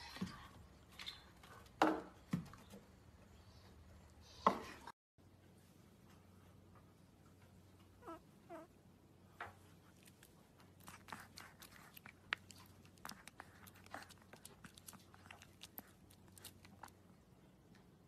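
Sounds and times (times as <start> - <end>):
puppy crunching a hard treat: 9.8 - 17.1.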